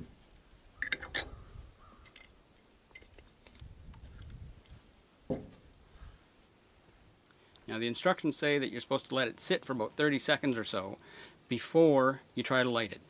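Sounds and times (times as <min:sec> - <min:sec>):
small metallic clicks: 0:00.8 - 0:01.4, 0:02.0 - 0:04.4.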